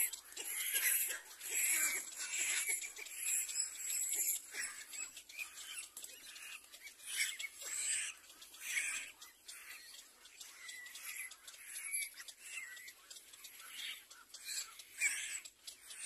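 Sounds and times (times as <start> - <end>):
chicks making hissy begging calls: 0.0 - 5.1.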